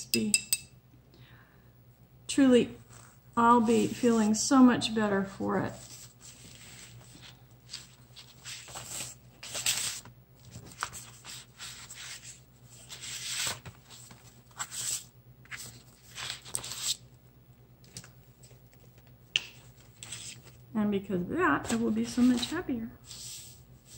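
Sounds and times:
paper rustling and crinkling: 5.7s - 17.0s, 17.9s - 20.6s, 21.6s - 23.9s.

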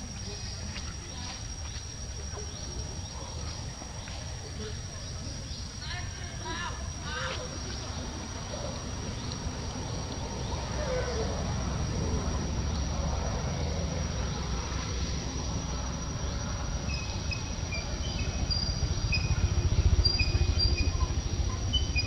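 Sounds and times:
insect drone: 0.0s - 22.0s
low buffeting rumble: 0.0s - 22.0s.

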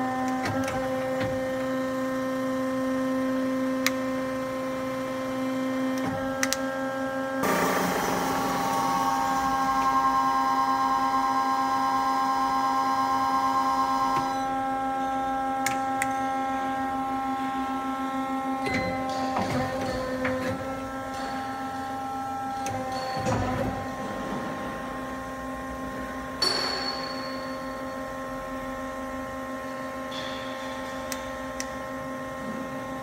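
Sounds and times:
band saw humming: 7.4s - 14.8s.

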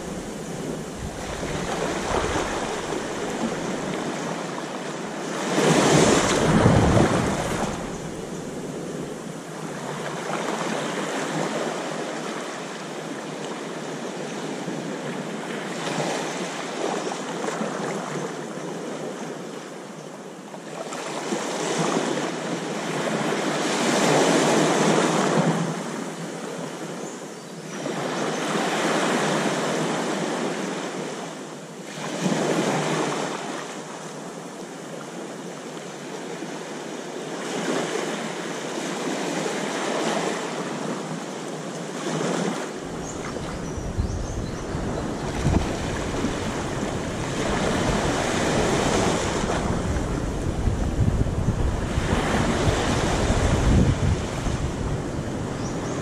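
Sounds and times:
small waves breaking on beach: 0.0s - 56.0s.

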